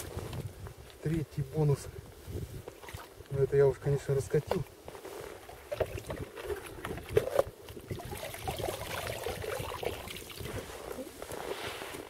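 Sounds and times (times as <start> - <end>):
water splashing and trickling: 2.7 - 3.2, 5.5 - 11.1
rustling: 10.4 - 12.0.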